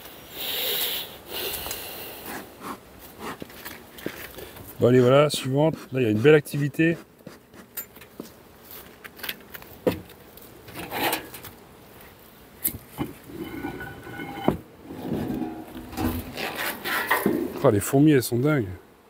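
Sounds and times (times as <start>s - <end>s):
buzzing tone: 13.0s - 17.5s.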